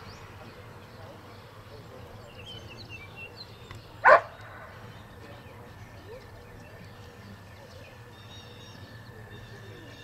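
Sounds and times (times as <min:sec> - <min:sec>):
dog bark: 0:04.0 - 0:04.4.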